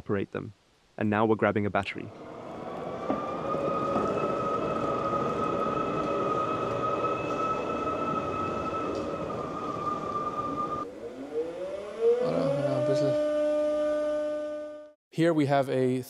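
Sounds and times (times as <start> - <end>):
rushing noise: 2.0 - 13.4
electric tractor whine: 2.1 - 15.0.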